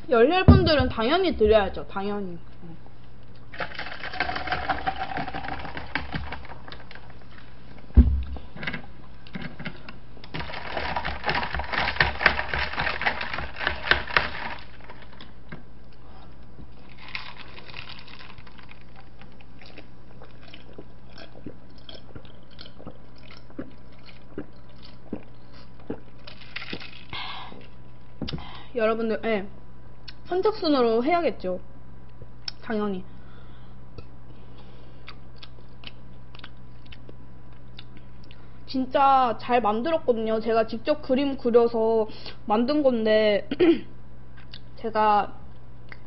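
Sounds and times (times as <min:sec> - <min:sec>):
drink pouring into glass: 0:03.6 - 0:06.4
sharp knock: 0:08.0 - 0:08.4.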